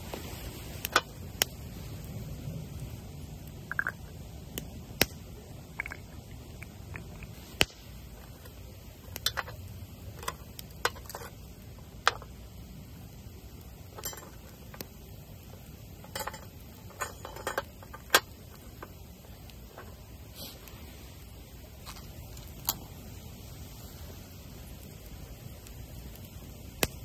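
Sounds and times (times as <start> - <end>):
cookware and utensils clinking: 16.0 - 18.1.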